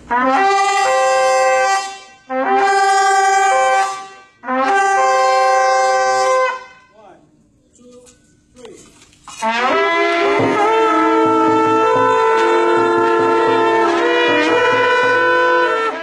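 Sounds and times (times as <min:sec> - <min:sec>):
horns blowing sustained blasts: 0:00.0 - 0:07.2, 0:09.4 - 0:16.0.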